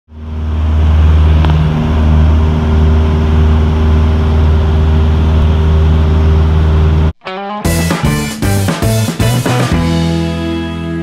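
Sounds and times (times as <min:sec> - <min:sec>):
propeller aircraft engine droning: 0:00.1 - 0:07.2.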